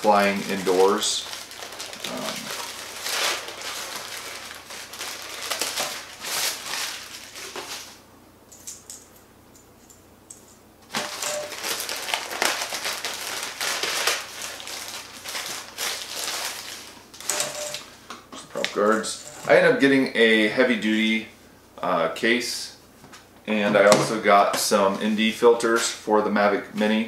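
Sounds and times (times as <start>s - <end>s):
packaging wrap crinkling: 0.0s - 8.0s, 10.9s - 17.9s.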